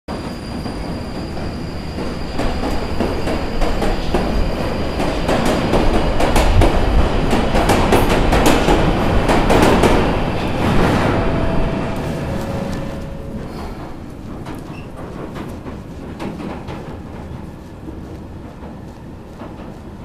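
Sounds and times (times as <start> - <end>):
underground train running: 0.1 - 20.0
wheels clattering on rails: 0.1 - 20.0.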